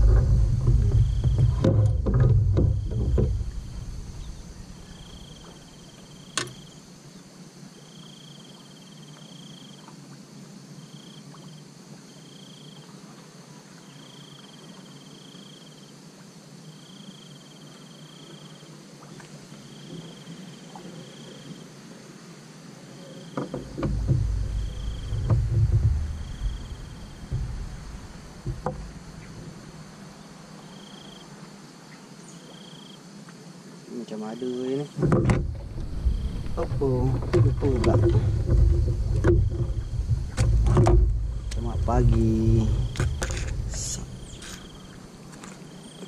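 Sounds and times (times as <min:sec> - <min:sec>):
low rumble: 0:00.0 - 0:05.9, 0:23.6 - 0:29.8, 0:35.2 - 0:45.3
insect trilling: 0:00.0 - 0:09.8, 0:22.8 - 0:46.0.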